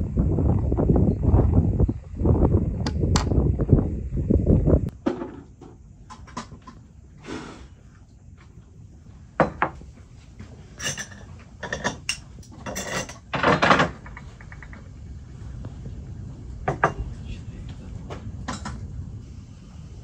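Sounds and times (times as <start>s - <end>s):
glassware clinking on wooden table: 9.4s - 9.8s, 10.8s - 13.9s
glass dishes and spoon clattering: 10.8s - 14.0s.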